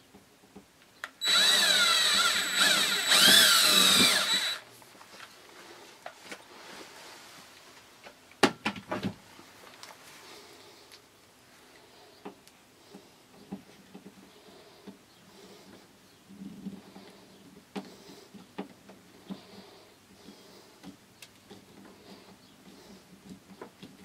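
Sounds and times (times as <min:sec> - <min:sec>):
cordless drill whining: 0:01.2 - 0:04.7.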